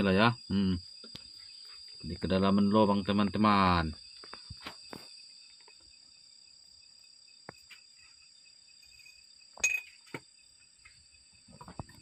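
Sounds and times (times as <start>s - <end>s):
ringing metallic clink: 9.0s - 10.0s.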